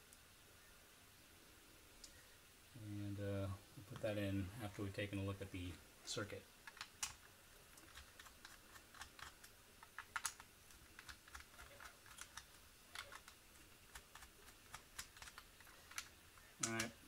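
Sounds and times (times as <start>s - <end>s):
hard plastic parts clicking: 6.6s - 17.0s.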